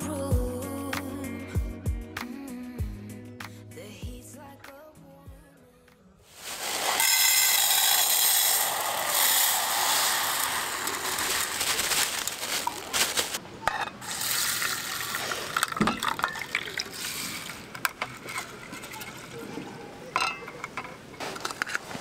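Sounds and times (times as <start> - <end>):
water running: 14.1 - 19.8.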